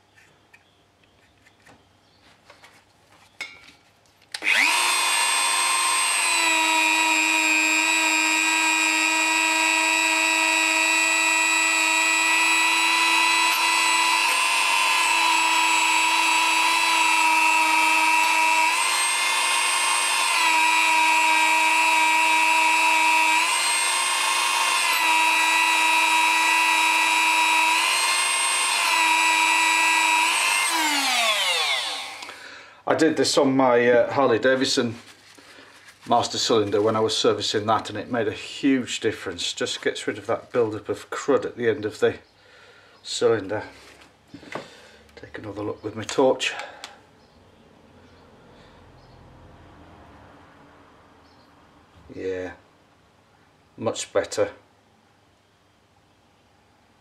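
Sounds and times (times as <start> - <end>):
rotary tool high-pitched whine: 4.4 - 32.4.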